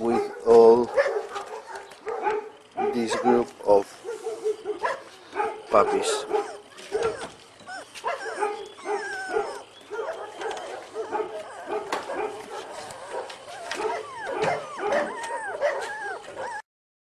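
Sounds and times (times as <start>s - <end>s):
puppies whimpering and yelping: 5.7s - 16.6s.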